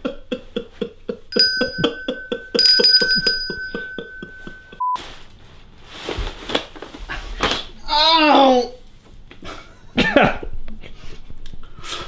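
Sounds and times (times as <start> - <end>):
handbell ringing rapidly: 1.4 - 4.8.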